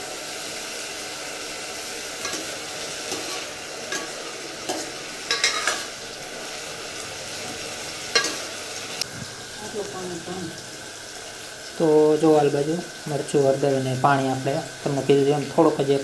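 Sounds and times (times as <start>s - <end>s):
vegetables sizzling in oil: 0.0s - 16.0s
ladle scraping a steel pot: 2.2s - 5.9s.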